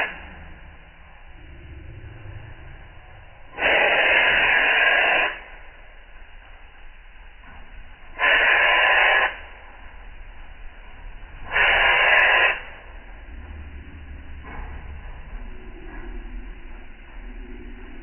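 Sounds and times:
aerosol spray can hissing: 3.6s - 5.4s, 8.2s - 9.4s, 11.5s - 12.7s.

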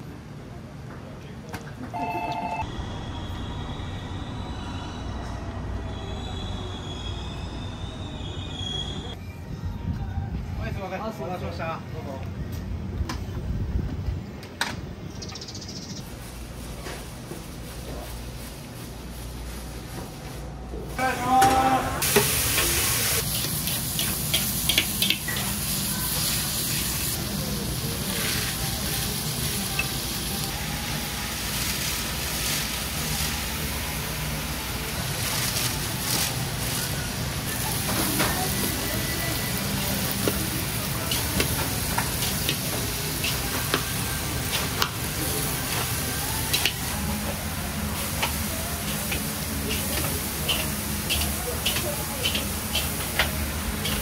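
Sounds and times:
food sizzling in a wok: 22.0s - 54.0s.

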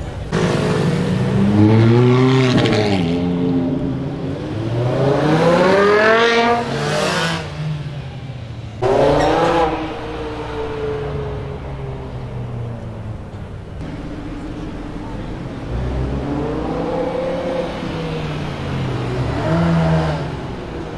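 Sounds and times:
car engine revving hard: 0.3s - 7.6s, 15.6s - 20.8s.

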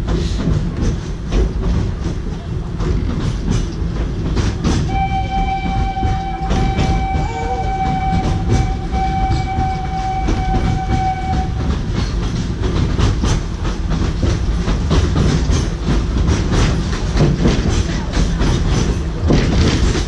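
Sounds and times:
train low rumble: 0.0s - 20.0s
wheels clacking over rail joints: 0.0s - 20.0s
steam locomotive whistle: 4.9s - 11.7s.

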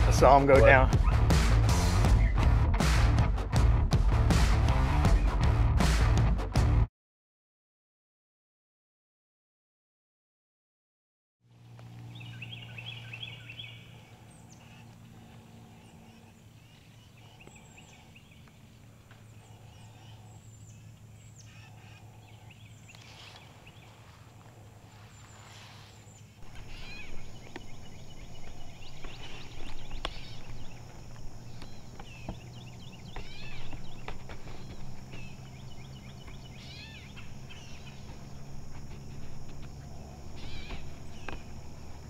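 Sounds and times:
birds chirping: 0.0s - 2.6s, 11.8s - 42.0s
steady low hum: 11.5s - 42.0s.

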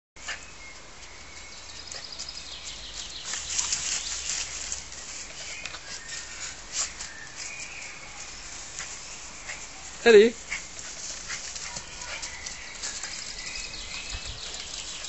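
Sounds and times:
shrub branches rustling and snapping: 2.9s - 9.2s, 10.7s - 15.0s.

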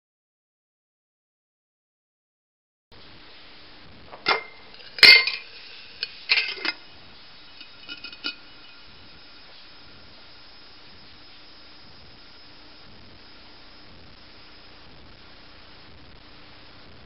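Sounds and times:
metal lid clinking on glass jar: 4.2s - 6.8s, 7.5s - 8.8s.

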